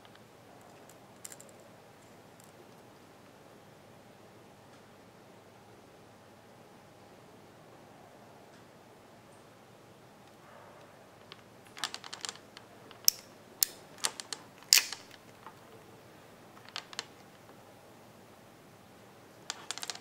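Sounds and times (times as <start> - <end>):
crimping tool clicking: 11.8 - 15.4.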